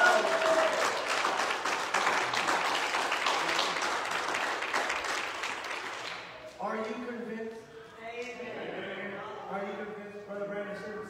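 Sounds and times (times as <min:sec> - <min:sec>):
congregation applauding: 0:00.0 - 0:06.9.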